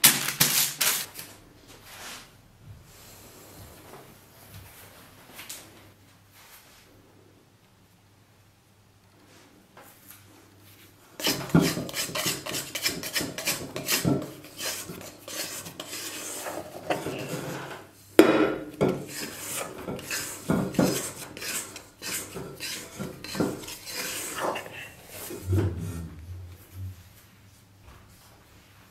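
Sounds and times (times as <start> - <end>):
hands mixing dough in metal bowl: 11.2 - 26.8.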